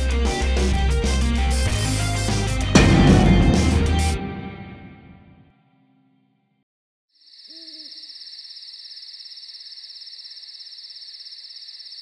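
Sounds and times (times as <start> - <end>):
soundtrack music: 0.6 - 5.4
crickets trilling: 7.2 - 12.0.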